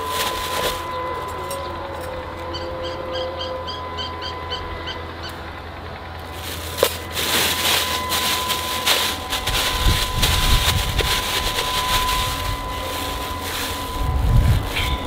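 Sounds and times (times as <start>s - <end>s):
plastic bag crinkling: 0.0s - 1.0s, 6.2s - 15.0s
low rumble: 6.2s - 15.0s.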